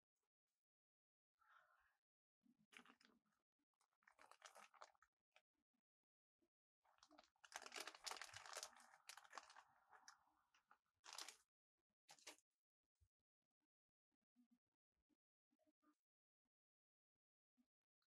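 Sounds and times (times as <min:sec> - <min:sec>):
crinkling and scraping handling noises: 0:04.1 - 0:05.0, 0:06.9 - 0:10.2, 0:11.0 - 0:11.4, 0:12.1 - 0:12.4.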